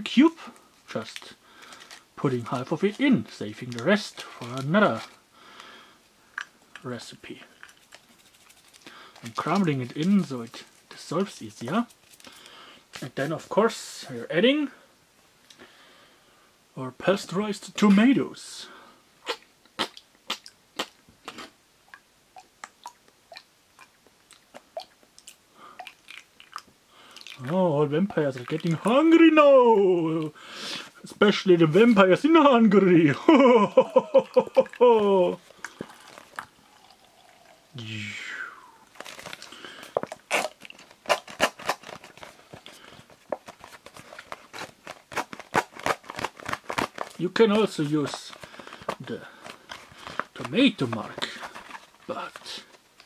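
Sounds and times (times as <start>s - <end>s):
cardboard carton crackling: 38.9s - 52.9s.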